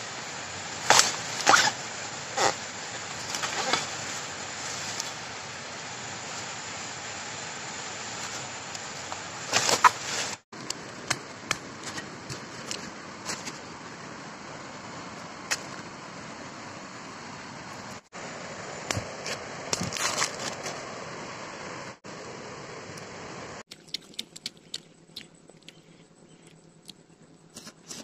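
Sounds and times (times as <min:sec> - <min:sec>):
dry leaves crackling: 0:00.0 - 0:11.0, 0:18.9 - 0:20.9
steady hiss: 0:00.0 - 0:23.6.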